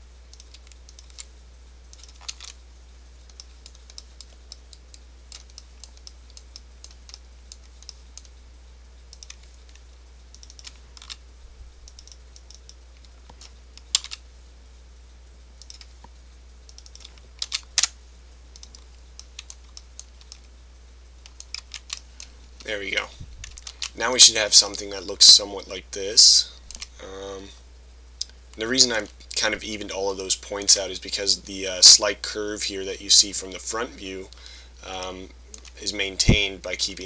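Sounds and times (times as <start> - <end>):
low steady hum: 0.0 - 37.0
keyboard and mouse clicks: 0.3 - 1.3, 3.3 - 8.3, 9.1 - 9.5, 10.3 - 11.2, 11.9 - 14.2, 15.6 - 16.1, 16.7 - 17.9, 18.6 - 20.5, 21.2 - 22.1.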